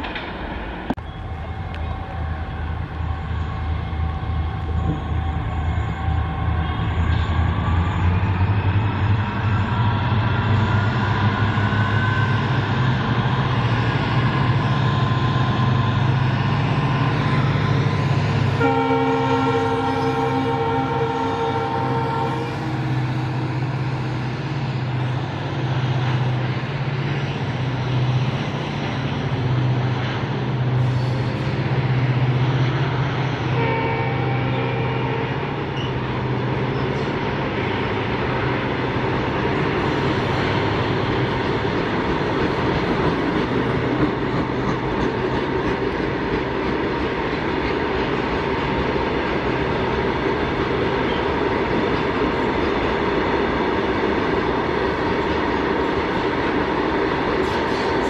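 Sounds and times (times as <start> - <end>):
diesel locomotive engine drone: 0.0 - 58.0
train horn: 18.5 - 23.6, 33.5 - 35.6.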